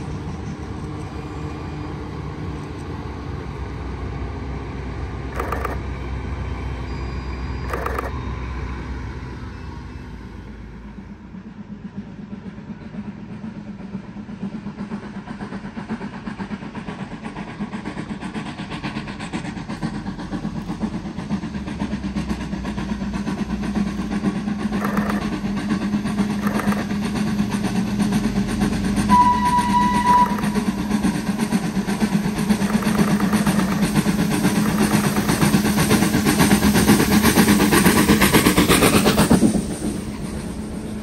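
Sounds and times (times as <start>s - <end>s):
steam locomotive running: 0.0s - 41.0s
train whistle blast: 29.1s - 30.7s.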